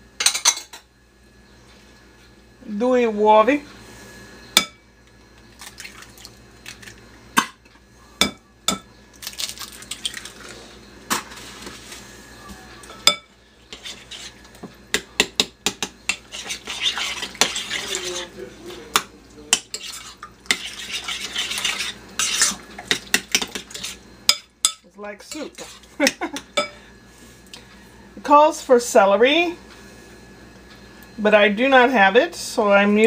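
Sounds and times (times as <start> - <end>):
stirring noise: 13.7 - 26.5.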